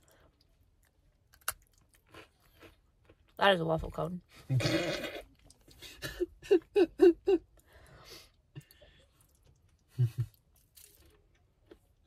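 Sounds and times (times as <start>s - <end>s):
person laughing: 5.8s - 7.5s, 9.9s - 10.4s.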